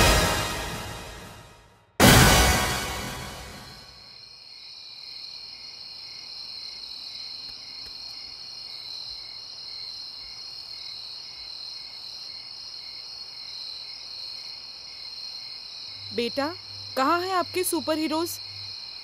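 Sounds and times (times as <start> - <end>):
crickets trilling: 4.2 - 19.0.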